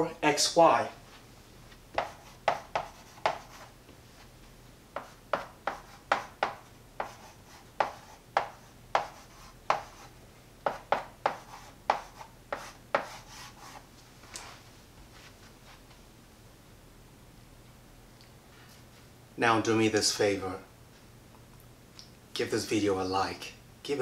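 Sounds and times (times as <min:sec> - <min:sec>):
chalk writing on a blackboard: 0:02.0 - 0:03.8, 0:05.0 - 0:13.9.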